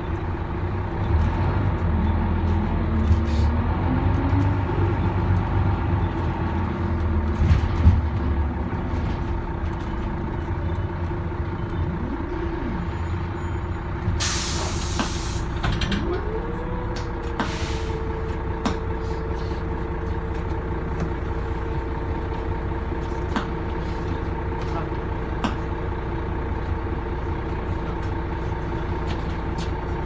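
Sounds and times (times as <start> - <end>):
bus engine low rumble: 0.0 - 30.0
air brake hiss: 14.2 - 15.5, 17.4 - 18.0
short hiss of air: 14.2 - 15.5.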